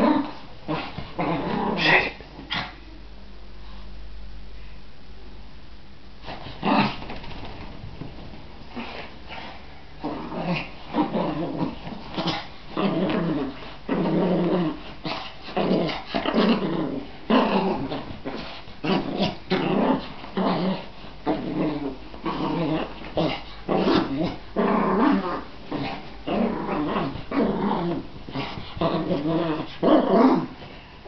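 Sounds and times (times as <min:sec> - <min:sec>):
small dog growling: 0:00.0 - 0:02.8, 0:06.4 - 0:07.6, 0:08.7 - 0:30.8.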